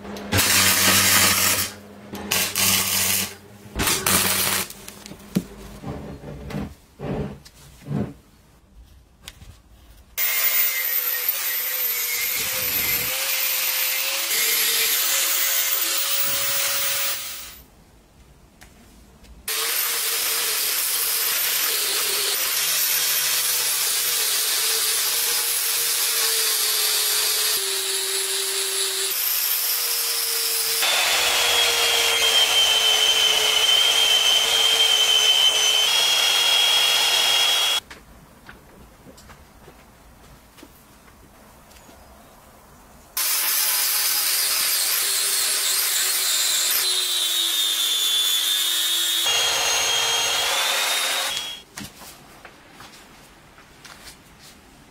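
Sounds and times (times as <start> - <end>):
angle grinder grinding steel: 0.3 - 4.7, 10.2 - 17.6, 19.5 - 37.8, 43.2 - 51.6
belt sander whining on steel: 30.8 - 37.8.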